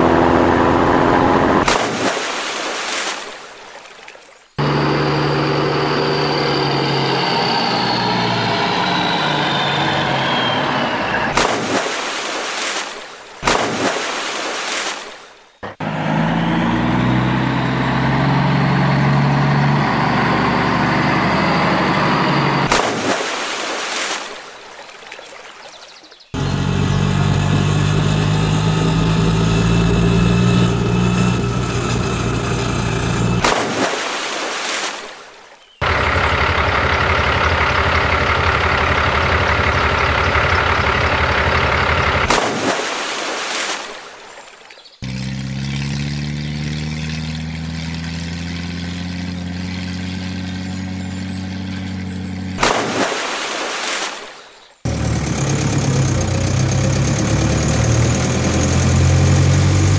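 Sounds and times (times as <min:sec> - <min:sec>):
vehicle engine running: 0:00.0 - 0:02.0, 0:04.5 - 0:11.6, 0:15.6 - 0:23.1, 0:26.2 - 0:34.0, 0:35.8 - 0:42.7, 0:45.0 - 0:53.0, 0:54.9 - 0:59.9.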